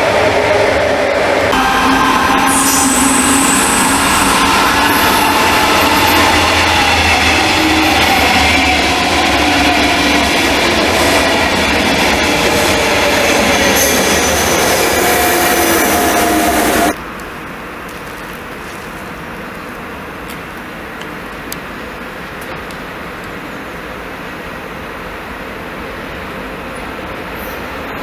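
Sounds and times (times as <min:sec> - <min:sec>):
train wheels rumbling on rails: 0:00.0 - 0:17.1.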